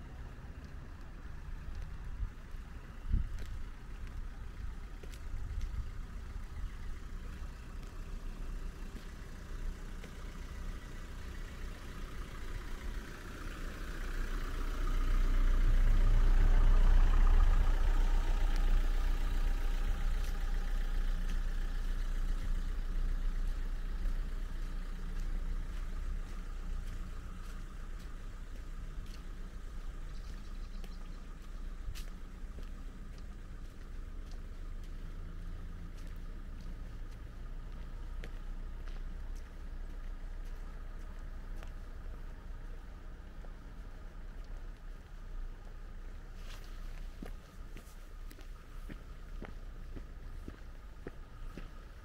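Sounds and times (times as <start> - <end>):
low outdoor rumble: 0.0 - 52.0.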